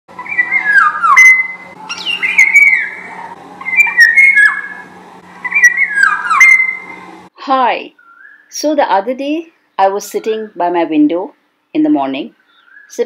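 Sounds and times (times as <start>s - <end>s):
bird singing fluty whistles: 0.2s - 4.8s, 5.4s - 7.0s, 8.0s - 8.5s.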